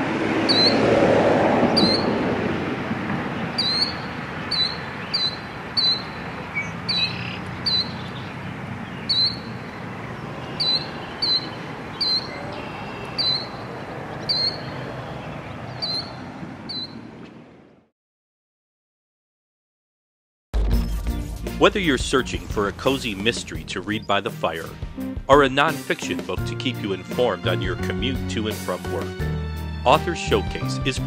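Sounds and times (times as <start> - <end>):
songbird chirping: 0.5 - 0.8, 1.7 - 2.1, 3.4 - 17.0, 21.8 - 24.8.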